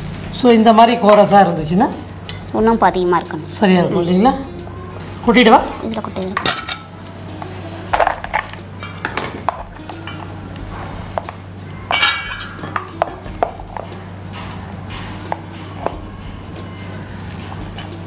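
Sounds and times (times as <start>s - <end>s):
steady low hum: 1.4s - 18.0s.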